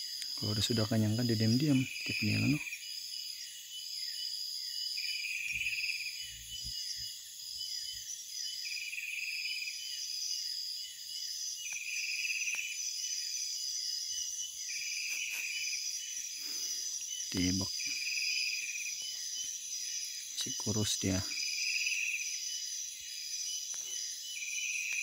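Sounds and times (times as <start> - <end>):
night insects chirping: 0.0 - 25.0.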